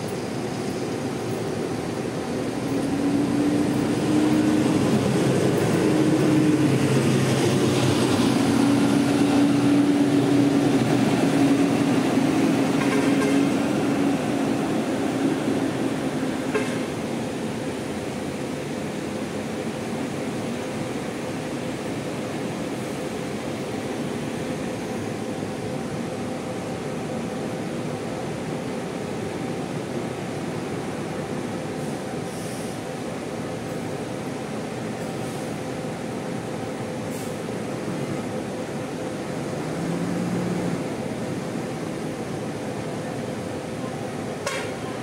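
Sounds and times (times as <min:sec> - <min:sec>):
bus engines idling drone: 0:00.0 - 0:45.0.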